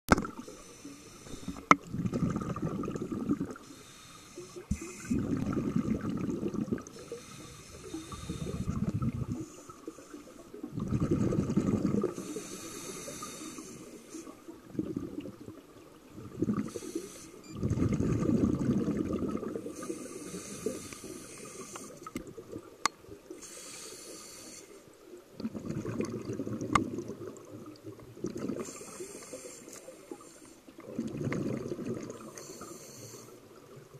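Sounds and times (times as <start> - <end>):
regulator inhaling hiss: 0.4 - 1.8, 3.6 - 5.2, 6.9 - 10.5, 12.1 - 14.4, 16.7 - 17.4, 19.7 - 22.1, 23.4 - 24.9, 28.6 - 30.7, 32.3 - 33.5
underwater exhaled bubbles rumbling: 1.4 - 3.6, 4.7 - 7.1, 7.8 - 9.8, 10.5 - 12.3, 14.5 - 16.8, 17.5 - 20.0, 25.2 - 28.8, 30.8 - 32.4.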